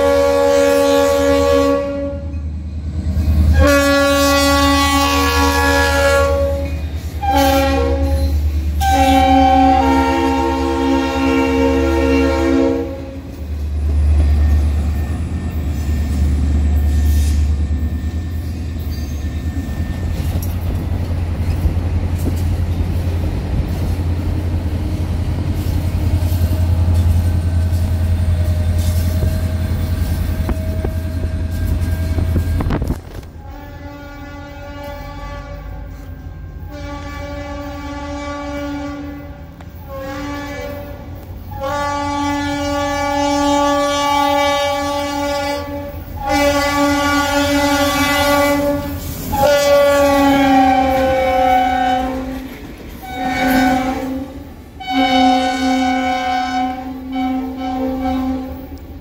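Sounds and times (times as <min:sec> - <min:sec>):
train horn blasts: 0:00.0 - 0:02.4, 0:03.1 - 0:13.5, 0:25.6 - 0:59.0.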